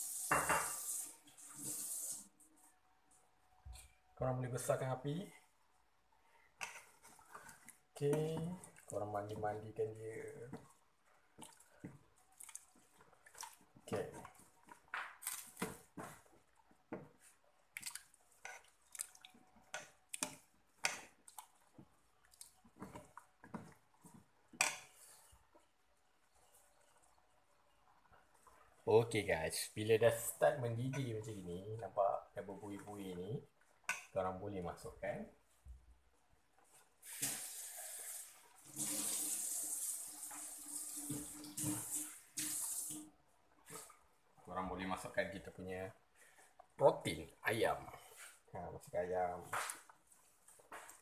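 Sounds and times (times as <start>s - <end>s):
ladle stirring thick stew in pot: 5.4s - 37.2s, 43.1s - 48.5s.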